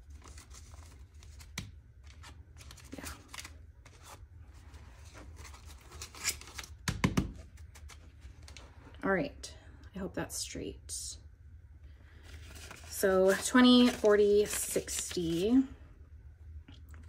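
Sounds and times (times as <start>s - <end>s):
banknotes rustling and sliding: 0.0s - 6.7s, 12.1s - 15.8s.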